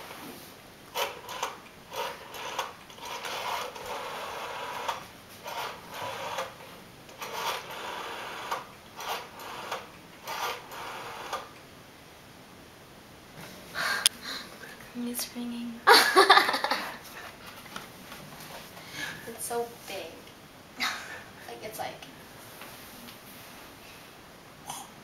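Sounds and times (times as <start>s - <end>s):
rotary dial whirring and ticking: 0.9s - 11.7s.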